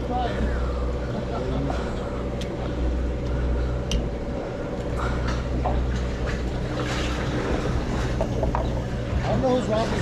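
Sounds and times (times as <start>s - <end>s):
boat engine humming: 0.0s - 10.0s.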